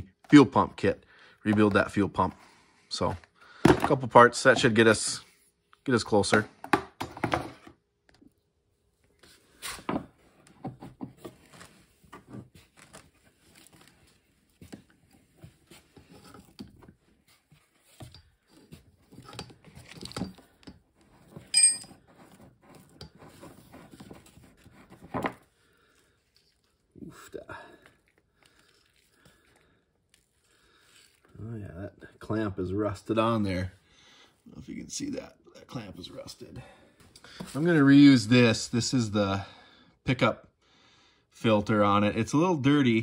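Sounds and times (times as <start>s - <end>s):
metal clink ringing: 21.5s - 21.9s.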